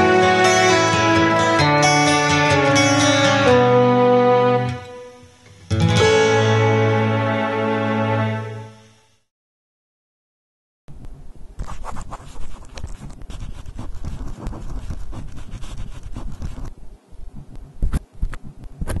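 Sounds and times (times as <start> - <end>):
rough scratching and scraping: 11.6 - 16.7.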